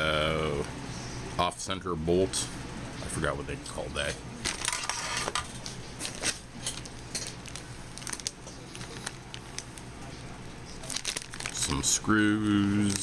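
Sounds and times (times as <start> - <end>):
plastic bag crinkling: 6.0 - 13.0.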